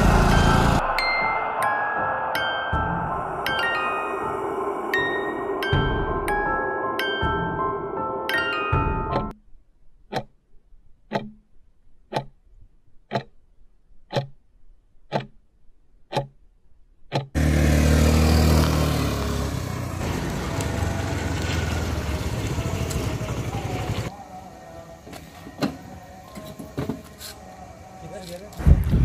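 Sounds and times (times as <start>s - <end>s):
motor scooter engine running: 0.0s - 0.8s, 17.4s - 24.1s
clock ticking: 10.1s - 10.4s, 11.0s - 11.5s, 12.1s - 12.4s, 13.0s - 13.4s, 14.0s - 14.4s, 15.0s - 15.4s, 16.1s - 16.4s, 17.1s - 17.4s.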